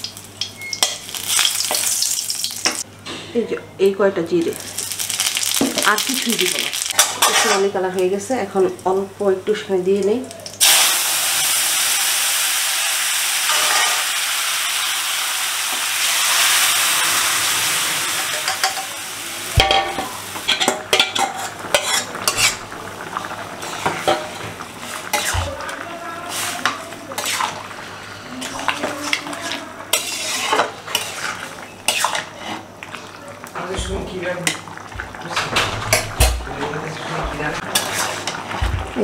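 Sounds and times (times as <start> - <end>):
food sizzling in hot oil: 0.0 - 2.9, 4.4 - 9.2, 10.4 - 39.0
metal spatula scraping pan: 7.0 - 7.7, 19.9 - 22.6, 26.2 - 32.7, 37.6 - 38.4.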